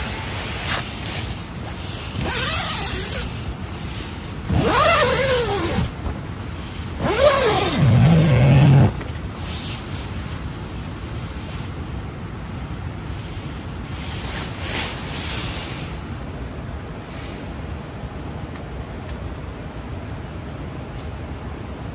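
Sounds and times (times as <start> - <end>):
tent zipper being pulled: 2.0 - 3.5, 4.4 - 6.0, 7.0 - 9.2.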